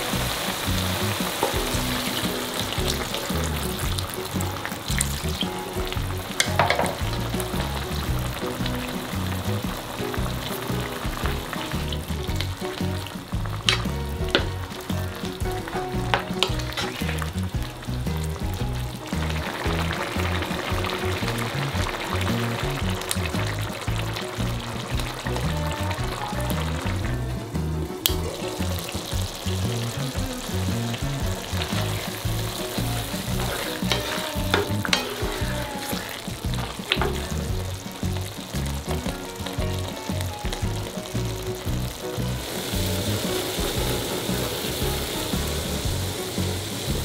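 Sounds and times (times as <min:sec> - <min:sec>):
sauce sizzling in a pan: 0:00.0 - 0:47.0
spatula stirring: 0:28.0 - 0:46.0
spatula stirring sauce: 0:31.7 - 0:37.6
spatula knocking against pan: 0:32.8 - 0:37.2.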